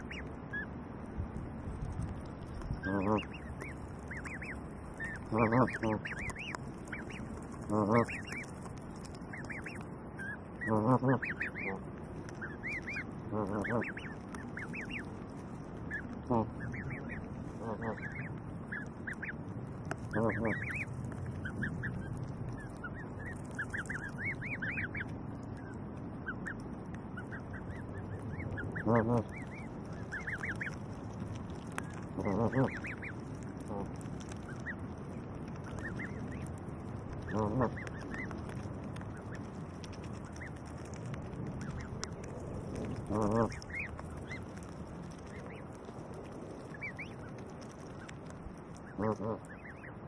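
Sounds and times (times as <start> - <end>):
goslings peeping: 0.0 - 50.0
goose honking: 2.8 - 15.1, 15.9 - 19.4, 20.0 - 26.6, 27.2 - 34.8, 37.2 - 39.4, 42.7 - 44.4, 48.8 - 49.9.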